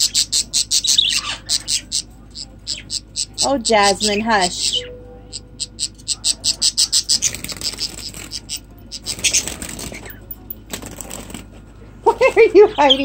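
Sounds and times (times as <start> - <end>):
budgerigars chirping: 0.0 - 10.2.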